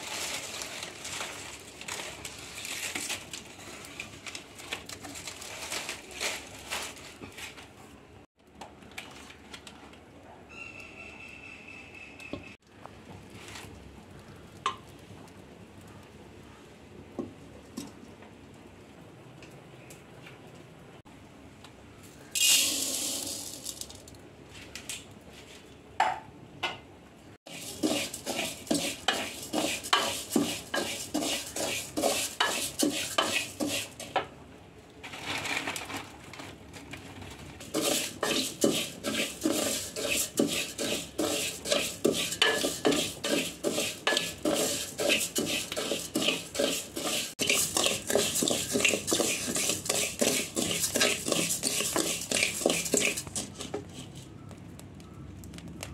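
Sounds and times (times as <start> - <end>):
spatula scraping grains in pan: 0.0 - 4.2, 22.3 - 23.9, 27.5 - 34.2, 37.6 - 54.4
rice poured into metal pan: 0.0 - 7.6, 22.2 - 24.2, 27.5 - 34.2, 35.0 - 53.8.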